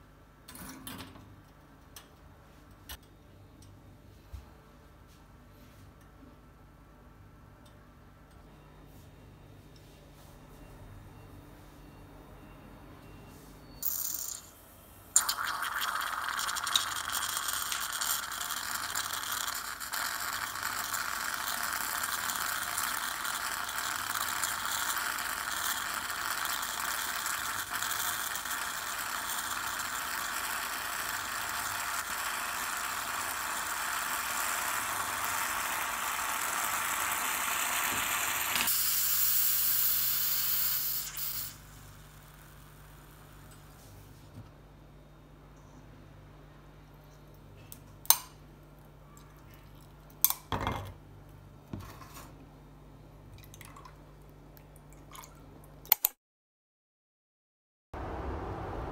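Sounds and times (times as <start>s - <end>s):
moka pot gurgling and sputtering: 15.2s - 43.6s
steam hissing: 32.2s - 42.4s.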